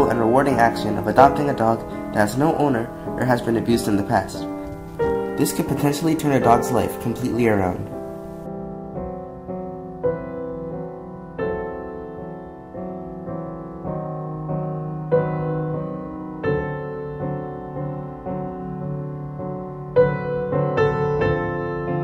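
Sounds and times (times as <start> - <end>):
sad piano music: 0.0 - 22.0.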